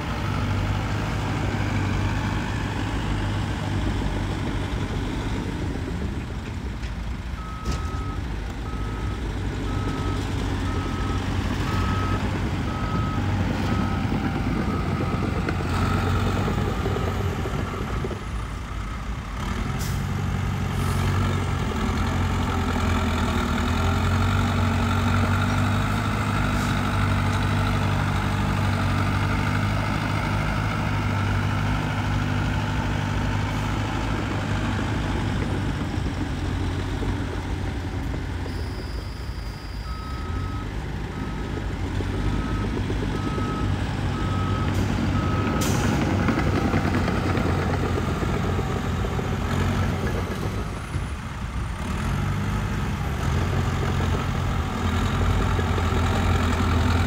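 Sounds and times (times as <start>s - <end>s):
heavy diesel engine running: 0.0s - 57.0s
reversing alarm beeping: 38.4s - 41.6s.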